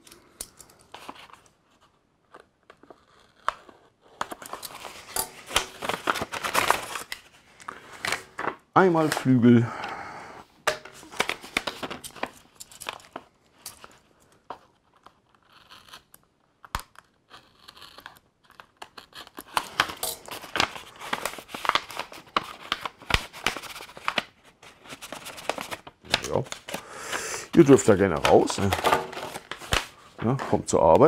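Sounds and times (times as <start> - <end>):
paper bag tearing and crinkling: 4.3 - 7.3, 19.1 - 30.6.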